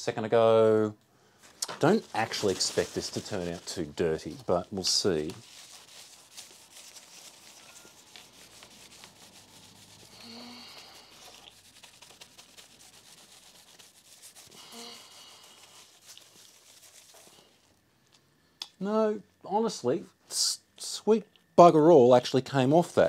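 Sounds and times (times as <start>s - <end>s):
paper towel rubbing circuit board: 1.8s - 17.7s.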